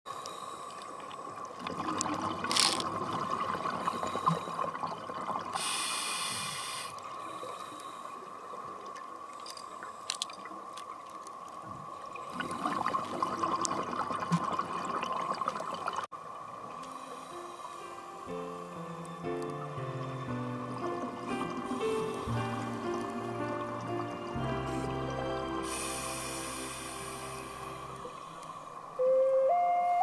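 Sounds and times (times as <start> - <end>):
hissing regulator inhalation: 5.6 - 7.9, 25.6 - 28.8
exhaled bubbles underwater: 12.2 - 16.1
steady high-pitched tone: 20.2 - 28.4.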